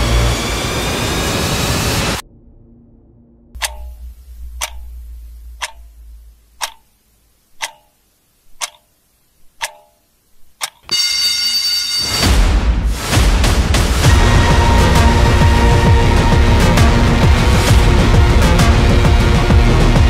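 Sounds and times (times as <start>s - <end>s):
low hum: 0.0s - 10.5s, 13.9s - 20.0s
clock ticking: 3.6s - 10.9s
music: 10.9s - 20.0s.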